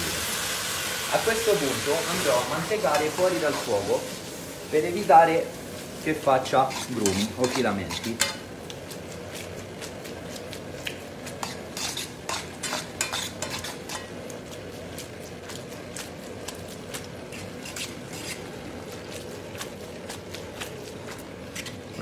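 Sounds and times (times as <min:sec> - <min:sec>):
fork scraping metal frying pan: 0:06.5 - 0:08.5, 0:11.2 - 0:14.2, 0:17.2 - 0:18.6.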